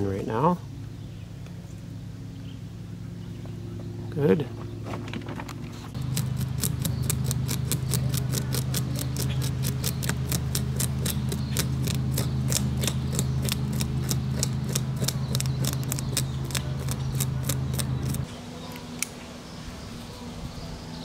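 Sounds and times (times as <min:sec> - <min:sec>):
steady low hum: 0:00.0 - 0:21.0
plastic rim scraping fish scales: 0:06.0 - 0:18.3.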